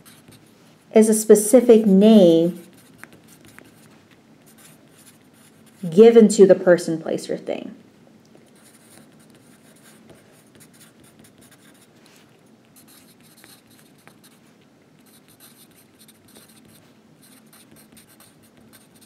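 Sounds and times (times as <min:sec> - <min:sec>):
handwriting scratching: 0:00.0 - 0:00.5, 0:02.6 - 0:05.9, 0:08.5 - 0:12.0, 0:12.6 - 0:14.4, 0:15.0 - 0:19.0.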